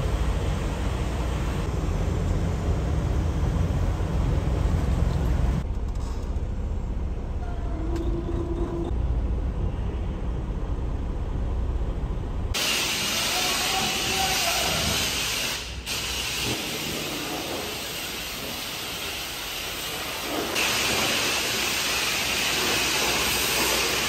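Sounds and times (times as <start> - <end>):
truck engine and road rumble: 0.0 - 24.0
high hiss: 12.6 - 24.0.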